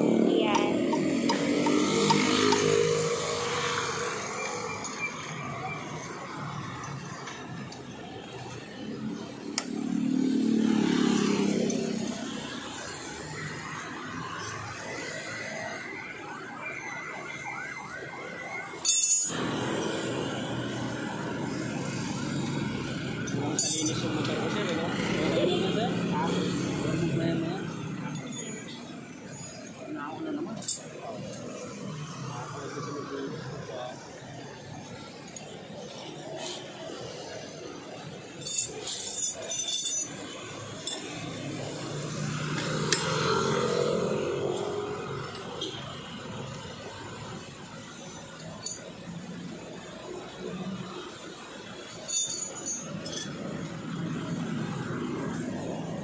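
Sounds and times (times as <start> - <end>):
motor vehicle hum: 0.0 - 14.9
steady background noise: 0.0 - 56.0
siren yelping: 0.1 - 7.7, 10.6 - 23.0
wrenches clinking: 18.8 - 20.0, 23.2 - 24.5, 37.9 - 41.8, 47.7 - 49.4, 51.7 - 54.8.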